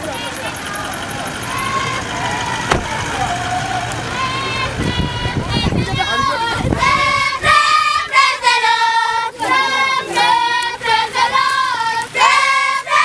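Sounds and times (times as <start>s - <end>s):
girls singing in unison: 4.0s - 13.0s.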